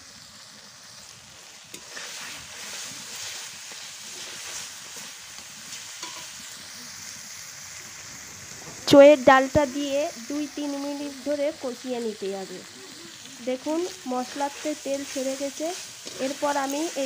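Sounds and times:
paste sizzling in oil: 0.0 - 17.0
metal spatula scraping a pan: 1.7 - 6.4, 13.6 - 17.0.

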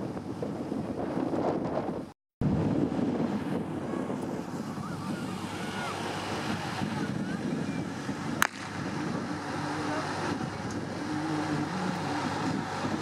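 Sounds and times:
wind buffeting microphone: 0.0 - 13.0
faint voices: 3.6 - 13.0.

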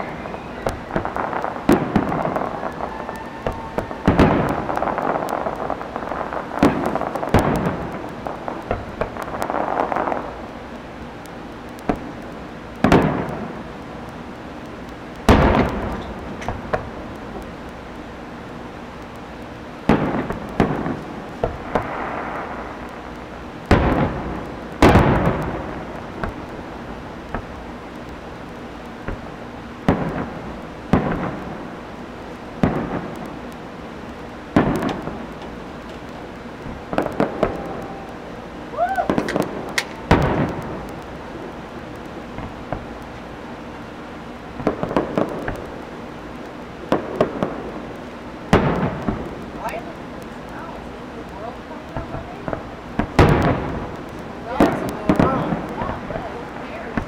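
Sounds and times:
firework shells booming: 0.0 - 18.2, 19.2 - 50.9, 51.8 - 57.0
small firework pop: 38.9 - 41.0.

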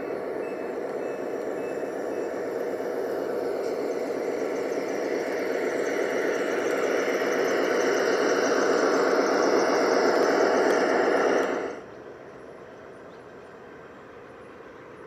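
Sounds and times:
thin high whine: 0.0 - 11.8
model locomotives running: 0.0 - 15.0.

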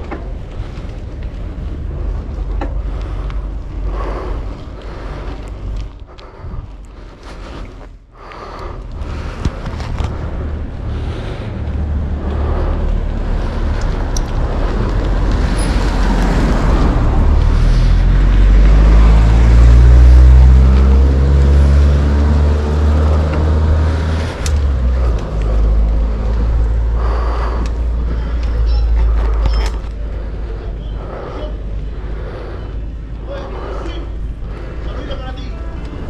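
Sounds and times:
low rumble: 0.0 - 36.0
vehicle engine passing by: 10.1 - 29.4.

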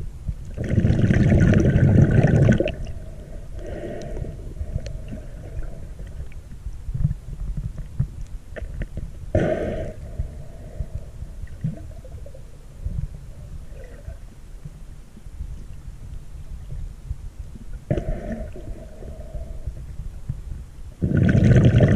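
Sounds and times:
muffled underwater gurgling: 0.5 - 6.3, 8.6 - 14.5, 16.3 - 21.9.

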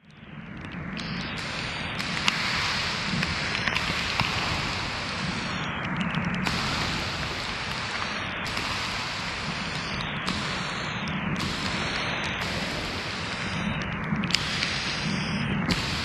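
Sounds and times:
rain drop ticks: 0.0 - 16.0
steady rain falling: 0.5 - 16.0.

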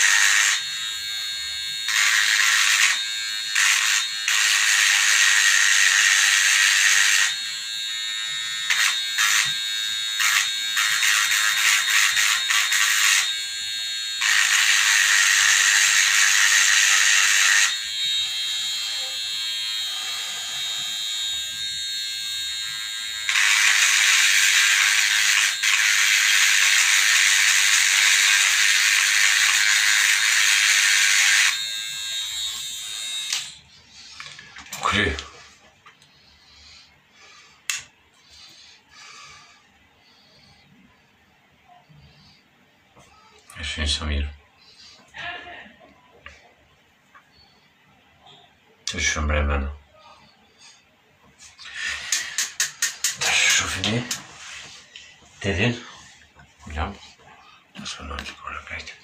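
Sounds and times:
harsh electric buzzing: 0.0 - 39.6, 51.6 - 54.8.

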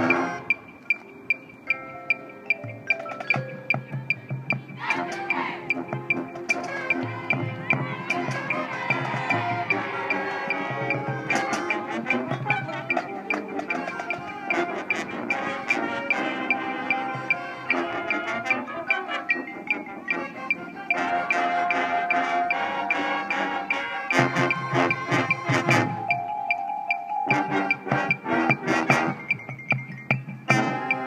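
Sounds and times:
brass chords: 0.0 - 0.8, 4.8 - 29.7, 30.4 - 31.0
mallet percussion: 0.0 - 31.0
sharp ticking beat: 0.0 - 31.0.

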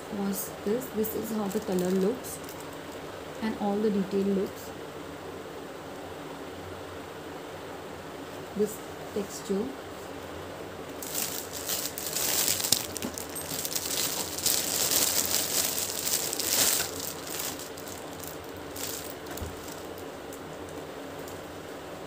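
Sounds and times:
plastic bag crinkling: 1.2 - 2.9, 11.0 - 21.4.

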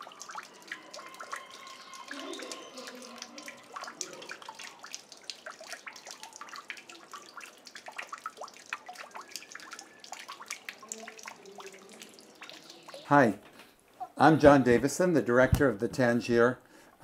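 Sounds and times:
fountain water trickling and dripping: 0.0 - 13.6.

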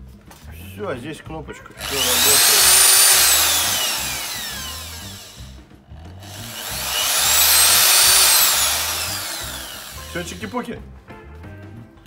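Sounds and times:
electric drill motor whining: 1.8 - 10.6.

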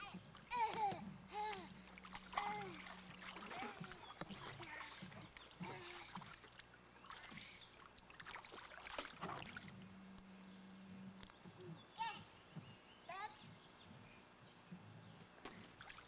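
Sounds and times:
water splashing in wading pool: 0.0 - 10.2, 15.5 - 16.0.

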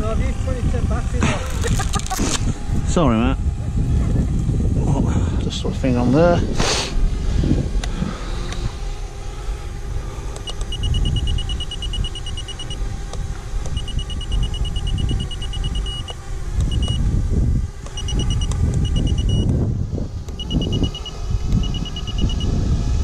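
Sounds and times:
wind rumble on microphone: 0.0 - 23.0
short high electronic beeps: 18.0 - 19.5.

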